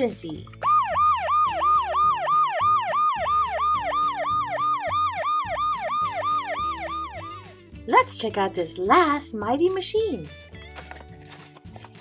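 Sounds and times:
electronic siren yelping: 0.6s - 7.5s.

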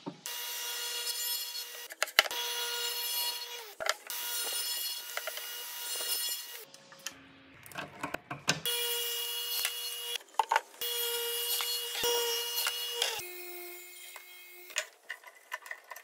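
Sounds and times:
saw cutting wood: 0.3s - 6.7s, 8.6s - 10.2s, 10.8s - 15.0s.

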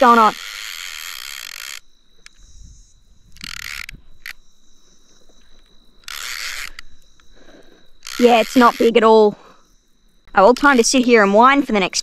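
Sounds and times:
fishing reel clicking: 0.0s - 2.6s, 3.3s - 4.4s, 6.0s - 7.2s, 8.0s - 9.0s.

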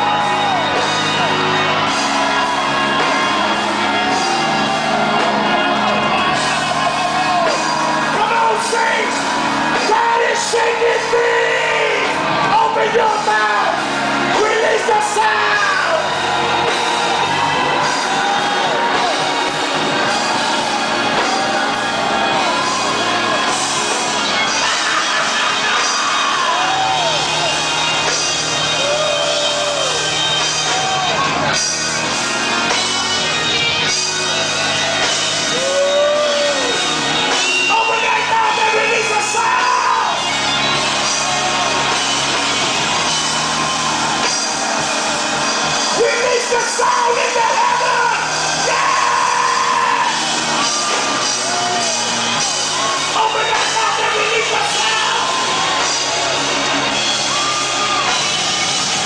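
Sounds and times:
live church band music: 0.0s - 59.0s
man shouting into microphone: 7.4s - 16.1s, 37.6s - 40.2s, 45.9s - 50.2s, 53.1s - 55.8s.

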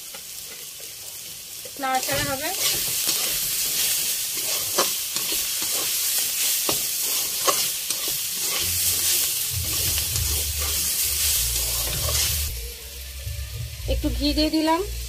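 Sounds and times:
cabbage sizzling in oil: 0.0s - 15.0s
metal spatula scraping pan: 2.0s - 12.5s.

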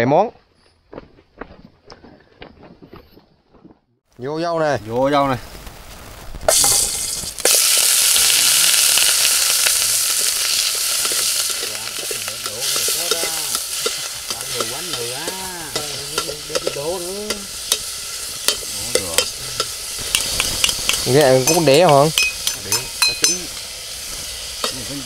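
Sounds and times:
meat sizzling in hot oil: 4.9s - 25.0s
ladle tapping and scraping pot: 10.9s - 23.6s.

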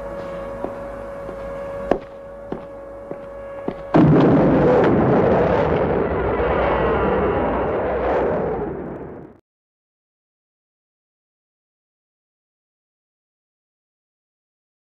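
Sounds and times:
steady hum: 0.0s - 9.4s
rumbling roar: 3.9s - 9.4s.

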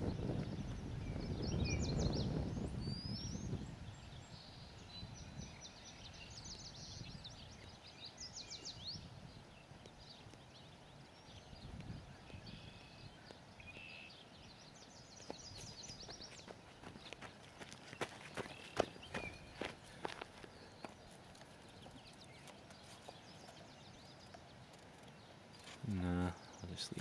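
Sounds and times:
birds chirping and trilling: 0.0s - 27.0s
running footsteps: 15.2s - 23.3s.

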